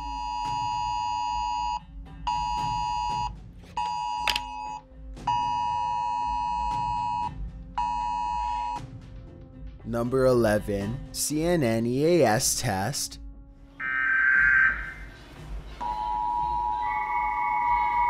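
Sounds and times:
harsh two-pitch alarm tone: 13.8s - 15.1s, 15.8s - 18.0s.

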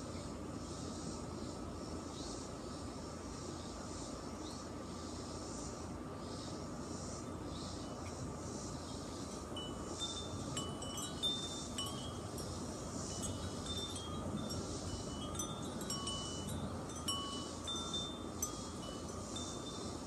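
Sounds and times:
steady background hiss: 0.0s - 20.0s
wind chimes ringing: 9.4s - 20.0s.

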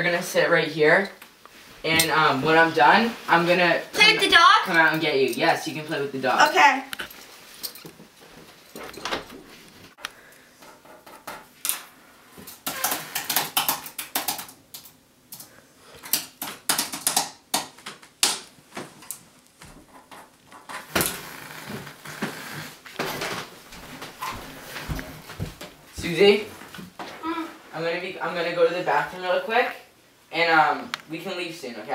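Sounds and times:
typing on computer keyboard: 12.6s - 14.6s.

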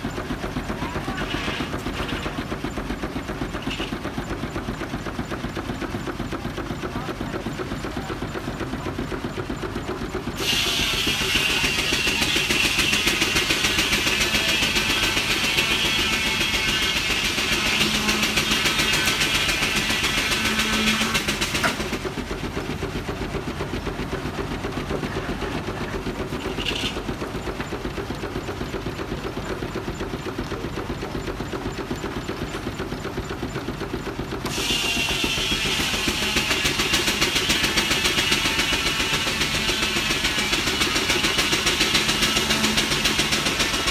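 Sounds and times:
steam engine beating steadily: 0.0s - 43.9s
saw whining through log: 10.3s - 22.3s, 34.4s - 43.9s.

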